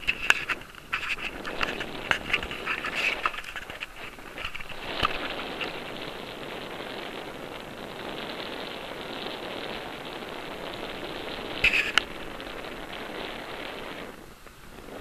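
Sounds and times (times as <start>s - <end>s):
crackling and clicking: 0.0s - 15.0s
wind buffeting microphone: 0.0s - 15.0s.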